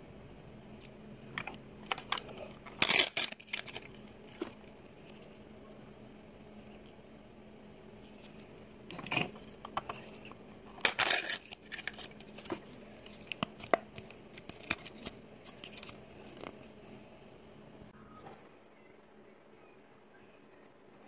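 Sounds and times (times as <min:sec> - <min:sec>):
plastic packaging crinkling: 0:01.8 - 0:04.6, 0:09.9 - 0:16.6.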